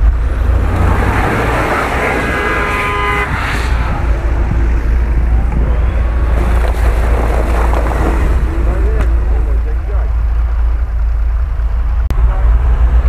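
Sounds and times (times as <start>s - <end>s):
off-road engines under load: 0.0s - 13.0s
wheels spinning in mud: 3.9s - 11.4s.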